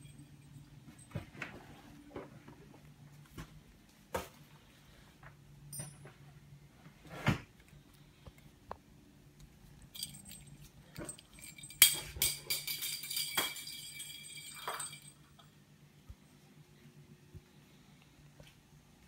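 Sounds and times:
small bell jingling: 9.9s - 15.4s.

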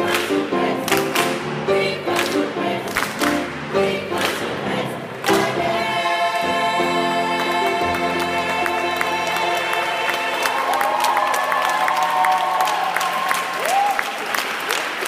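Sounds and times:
choir singing a hymn: 0.0s - 10.9s
hand claps: 2.2s - 3.4s.

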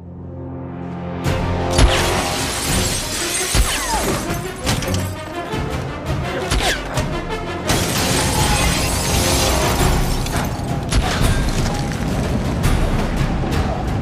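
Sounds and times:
tense film score: 0.0s - 14.0s
glass shattering: 1.8s - 5.3s, 7.7s - 11.8s.

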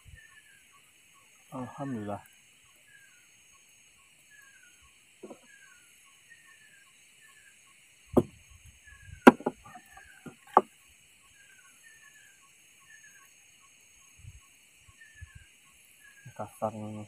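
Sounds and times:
bird chirping: 0.0s - 17.0s
high insect drone: 0.0s - 17.0s
sharp knocks: 8.1s - 8.4s, 9.2s - 10.7s.

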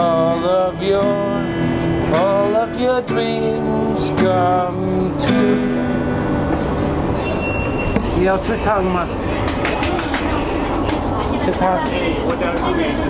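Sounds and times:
man singing: 0.0s - 6.1s
acoustic guitar strumming: 0.0s - 10.7s.

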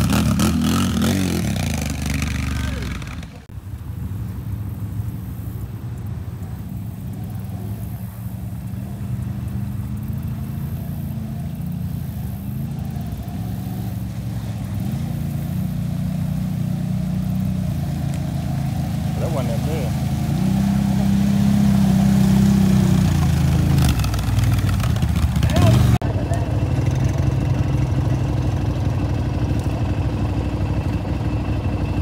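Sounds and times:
atv engines running: 0.0s - 32.0s.

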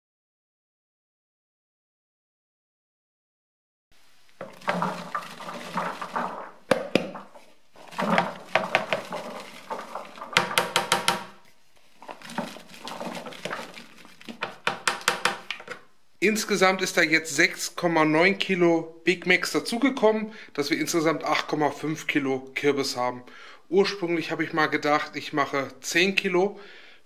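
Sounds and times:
pumpkin cubes clattering into bucket: 4.4s - 11.4s, 12.0s - 15.8s
sharp knocks: 10.3s - 11.4s, 14.4s - 15.5s.

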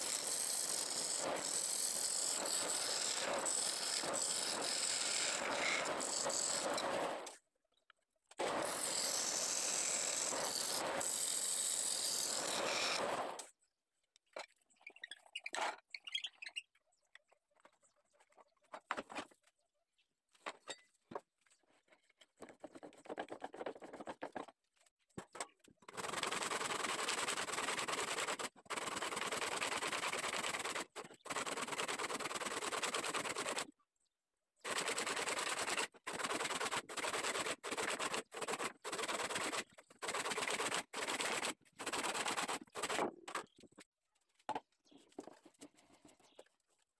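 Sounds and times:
hand saw cutting wood: 0.0s - 7.4s, 8.4s - 13.5s, 25.9s - 33.7s, 34.6s - 43.5s.

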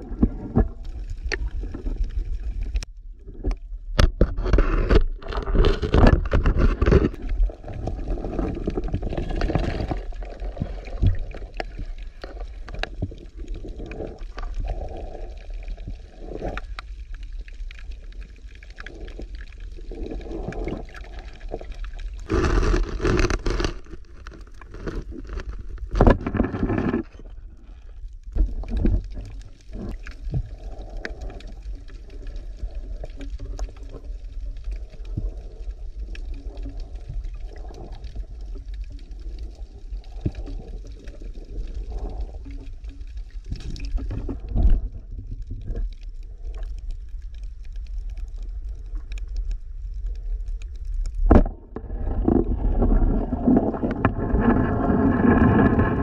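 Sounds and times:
underwater rumble: 0.0s - 56.0s.

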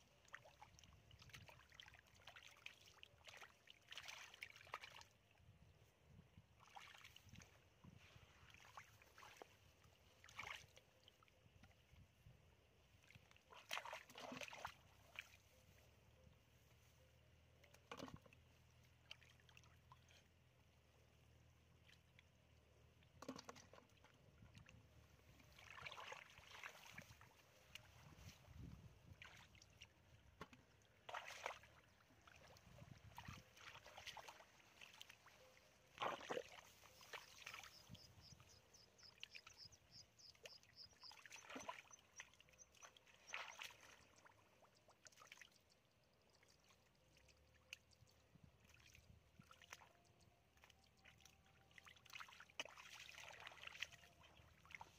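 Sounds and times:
water splash: 35.9s - 37.8s.

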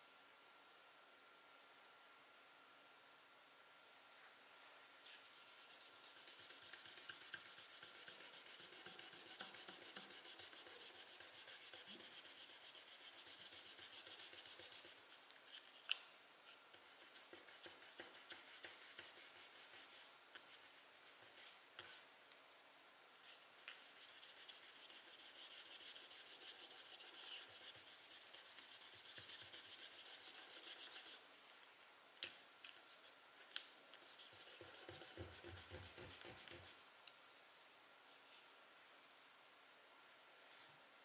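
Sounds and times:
pencil scribbling on paper: 5.4s - 15.0s, 16.9s - 20.1s, 23.8s - 31.2s, 34.1s - 36.8s.

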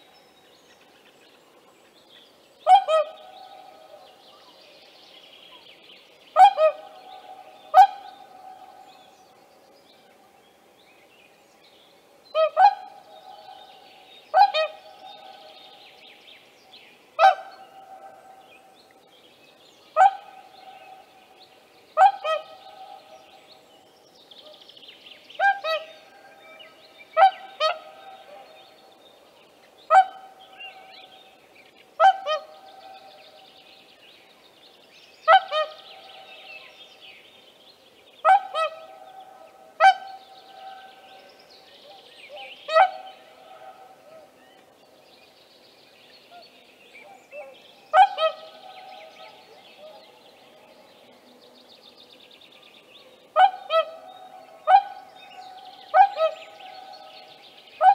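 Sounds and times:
swan bugling honk calls: 2.7s - 3.2s, 7.7s - 8.4s, 14.3s - 15.0s, 17.2s - 18.2s, 22.0s - 22.7s, 29.9s - 30.4s, 32.0s - 32.7s, 35.3s - 35.8s, 38.2s - 39.0s, 39.8s - 40.9s, 42.4s - 43.8s, 47.4s - 48.8s, 53.4s - 55.1s.

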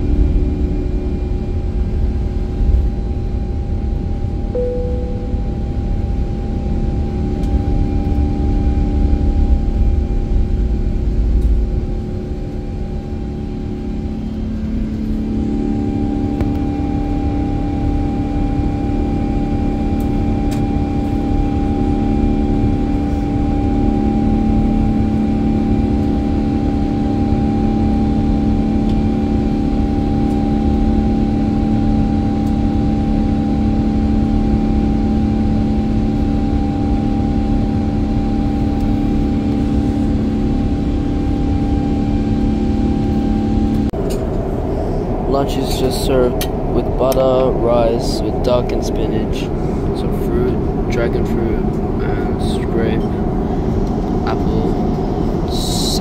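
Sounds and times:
constant low hum: 0.0s - 56.0s
jet engine drone: 0.0s - 56.0s
rushing air: 43.9s - 52.4s.

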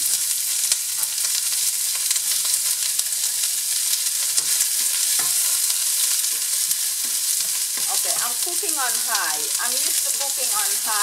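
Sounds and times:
onion sizzling in hot oil: 0.0s - 11.0s
wooden spoon stirring: 4.4s - 10.8s.

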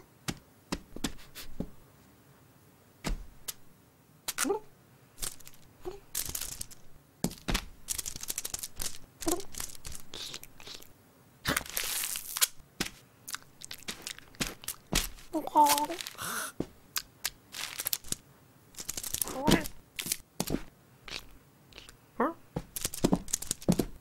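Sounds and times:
tape crinkling: 5.2s - 10.8s, 11.5s - 16.4s, 17.0s - 21.3s, 22.6s - 24.0s
sticky tape tearing: 7.4s - 10.8s, 11.5s - 12.6s
cat-like vocal sounds: 19.2s - 19.8s.

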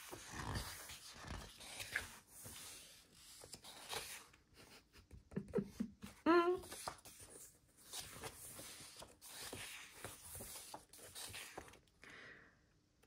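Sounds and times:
paper pages rustling: 0.0s - 4.4s, 6.6s - 11.9s.

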